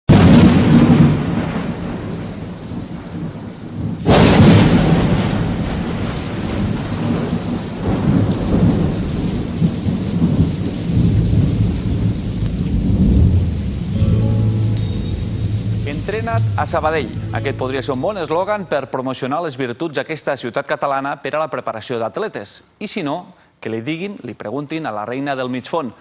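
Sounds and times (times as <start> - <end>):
loud thunderclap: 0.1 - 14.2, 15.3 - 18.8
rolling thunder rumble: 0.1 - 14.7, 15.3 - 18.8
rain hissing: 0.1 - 18.9.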